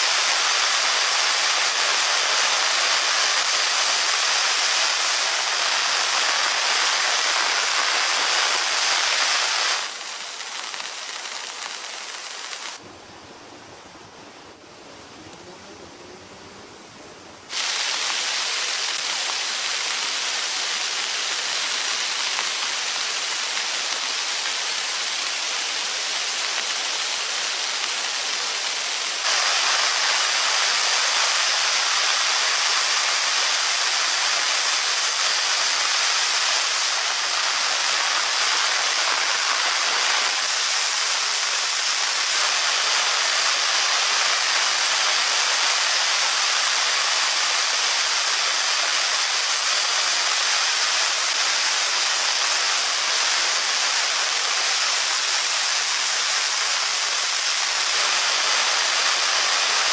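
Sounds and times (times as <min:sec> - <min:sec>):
heavy rain falling: 0:00.0 - 0:13.1, 0:14.4 - 0:59.9.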